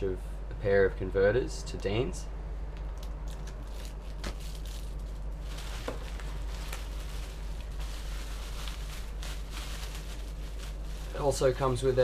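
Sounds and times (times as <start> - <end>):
steady low hum: 0.0 - 12.0
bubble wrap crinkling: 3.0 - 12.0.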